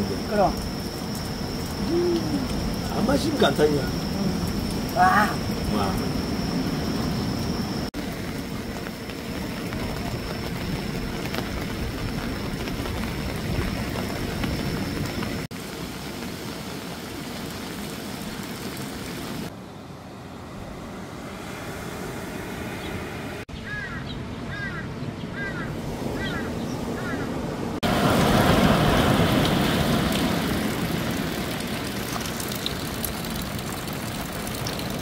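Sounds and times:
birds chirping: 22.6 - 27.8
surf breaking on beach: 27.8 - 32.4.

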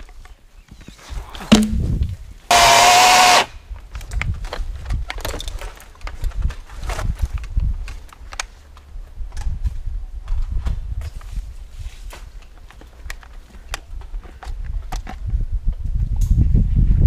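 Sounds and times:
sharp knock: 1.5 - 1.8
electric chainsaw burst: 2.5 - 3.5.

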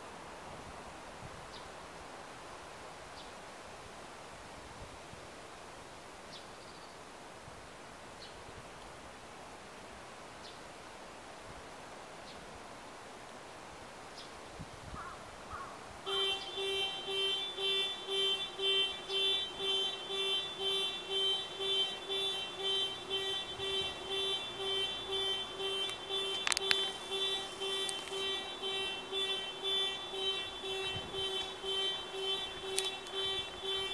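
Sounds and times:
pulsing alarm beeps: 16.1 - 33.9.

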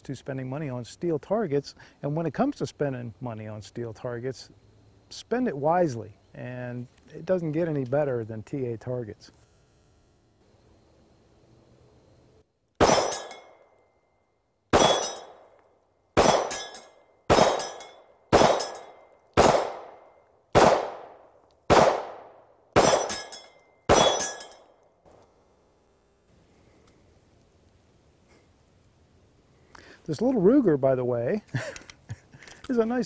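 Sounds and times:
pistol shots: 12.8 - 13.4, 14.7 - 15.4, 16.2 - 24.6
metallic clang of steel target: 12.8 - 13.6, 14.8 - 15.5, 16.2 - 20.1, 22.8 - 24.7.

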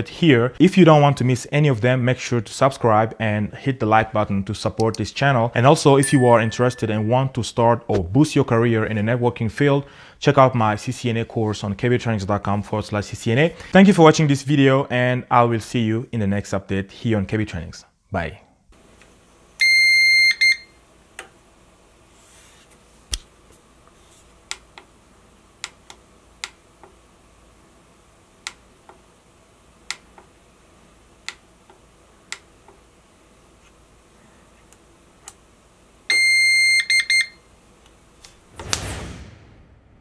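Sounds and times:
ups beeping: 6.0 - 7.2.

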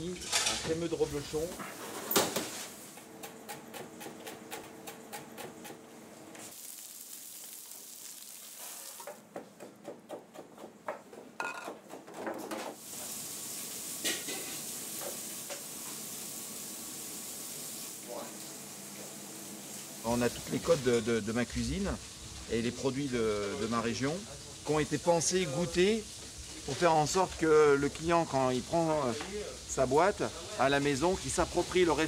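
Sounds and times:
utensils and dishes clinking: 0.0 - 0.9, 14.0 - 14.7
steady hiss: 6.4 - 9.2, 12.7 - 32.0.

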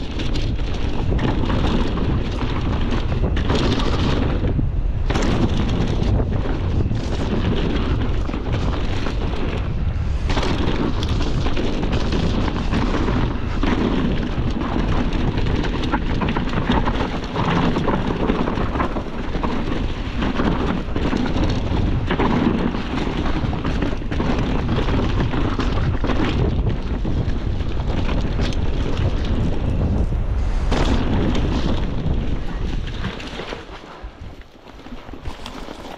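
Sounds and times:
bike knocking and rattling: 0.0 - 35.9
wind buffeting microphone: 0.0 - 35.9
tyres on dirt and leaves: 25.7 - 35.9.

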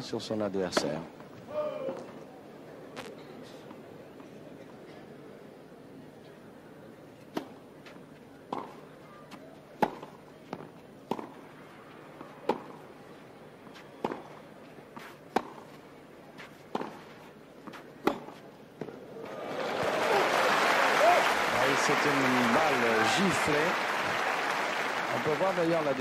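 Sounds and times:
tennis ball hit by rackets: 9.8 - 11.4, 16.7 - 19.0.

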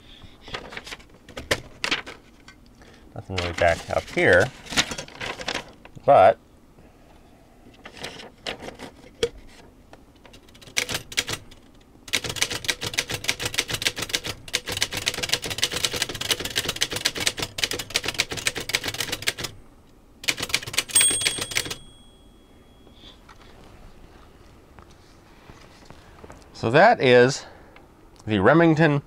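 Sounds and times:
typewriter keystrokes: 10.4 - 19.6, 20.2 - 22.1
typewriter bell ringing: 20.7 - 22.9.

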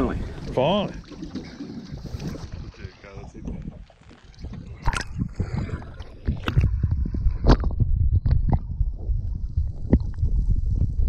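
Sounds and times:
water sloshing and gurgling: 0.0 - 11.0
underwater clicks and pops: 3.4 - 9.0, 9.8 - 10.9.

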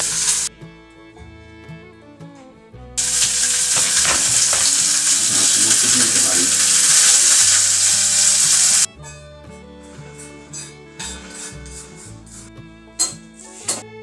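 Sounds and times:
food sizzling loudly in a pan: 0.0 - 0.5, 3.0 - 8.9
faint background music: 0.0 - 14.0.

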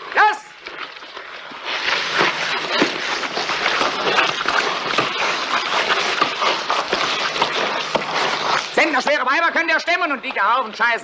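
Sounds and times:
crawling through mud scuffling: 0.6 - 9.6.

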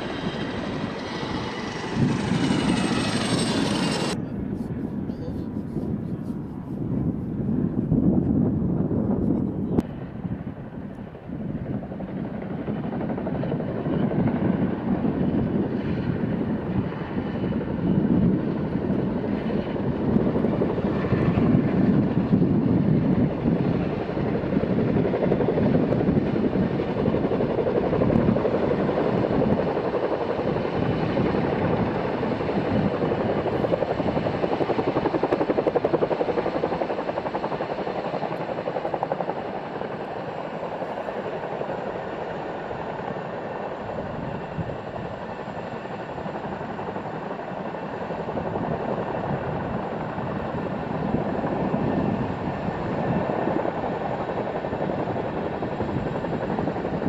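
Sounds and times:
helicopter rotors chopping: 0.0 - 6.9, 8.8 - 57.0.

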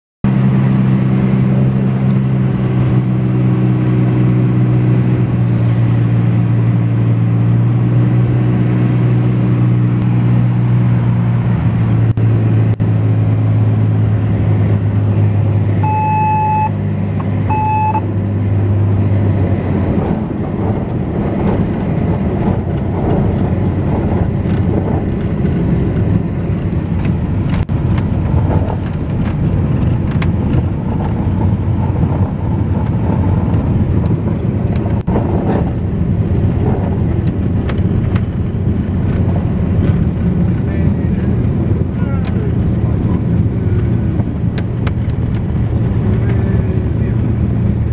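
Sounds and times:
rumble of wheels and airflow: 0.2 - 47.9
aircraft engine droning: 0.3 - 47.9
stall-warning horn beeping: 15.8 - 16.8, 17.5 - 18.1.

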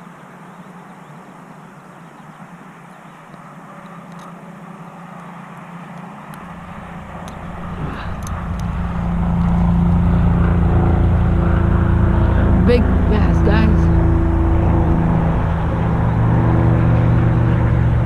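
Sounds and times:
motor engine humming: 1.4 - 18.0.

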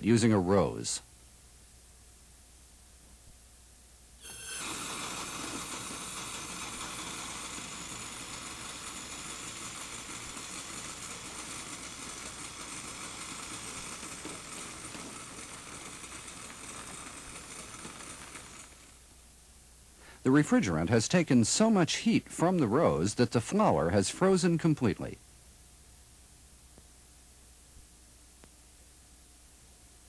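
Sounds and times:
refrigerant hissing: 4.2 - 18.9.

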